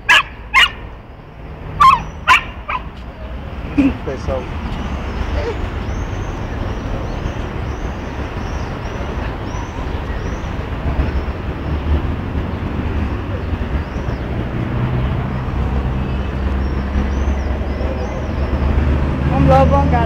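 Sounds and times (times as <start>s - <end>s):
street traffic rumble: 0.0s - 20.0s.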